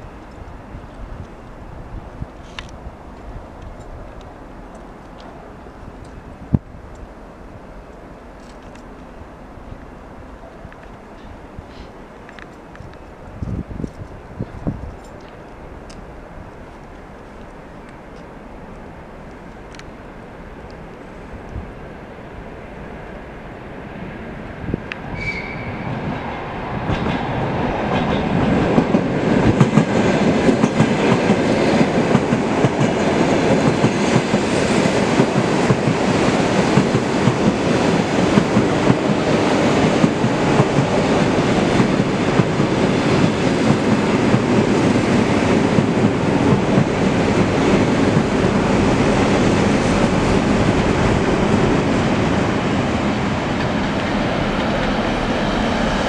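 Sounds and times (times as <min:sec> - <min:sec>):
train wheels clattering on track: 0:24.9 - 0:56.0.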